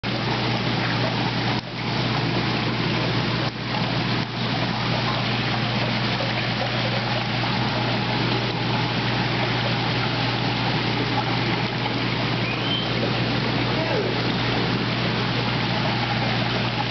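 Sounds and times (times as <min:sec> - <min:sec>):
low steady hum: 0:00.0 - 0:16.9
running water: 0:00.0 - 0:16.9.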